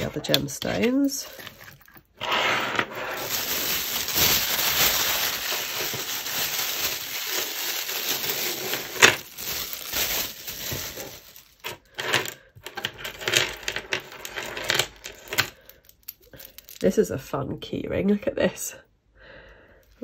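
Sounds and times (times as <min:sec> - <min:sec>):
plastic bag rustling: 0:00.0 - 0:12.4.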